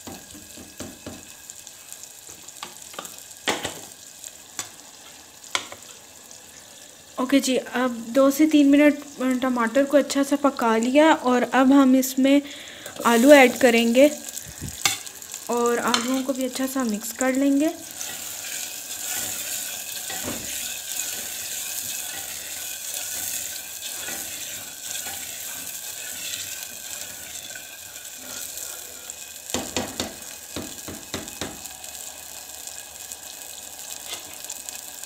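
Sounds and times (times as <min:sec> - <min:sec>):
potatoes sizzling in oil: 0:00.0 - 0:35.0
spatula knocking and scraping pot: 0:18.0 - 0:28.5, 0:29.5 - 0:31.7.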